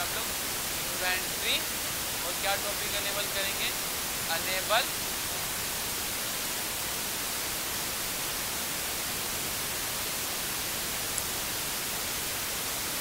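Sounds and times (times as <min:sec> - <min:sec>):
background hiss: 0:00.0 - 0:13.0.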